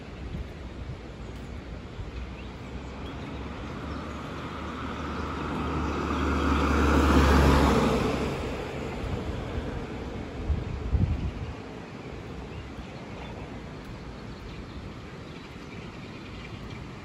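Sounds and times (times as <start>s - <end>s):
car driving past: 2.7s - 10.2s.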